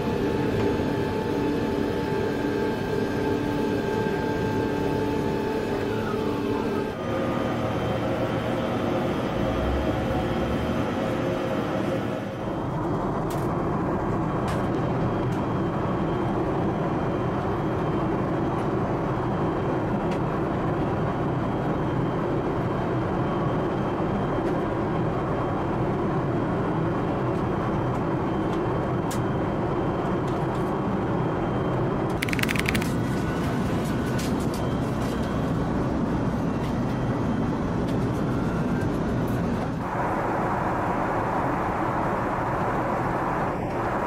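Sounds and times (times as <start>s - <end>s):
airliner cabin noise: 0.0s - 17.4s, 31.8s - 44.0s.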